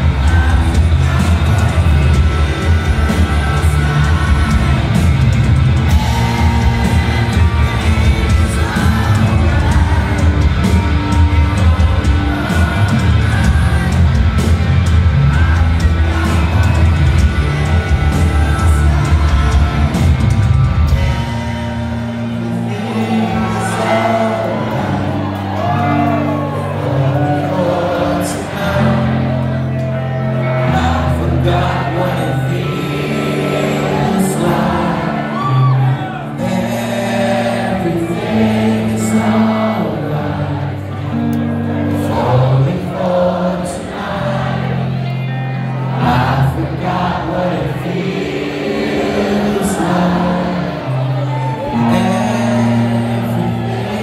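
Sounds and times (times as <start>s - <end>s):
bass guitar: 0.0s - 54.0s
drums: 0.0s - 54.0s
electric guitars: 0.0s - 54.0s
keyboard: 0.0s - 54.0s
live rock band playing: 0.0s - 54.0s
singer singing: 0.0s - 54.0s.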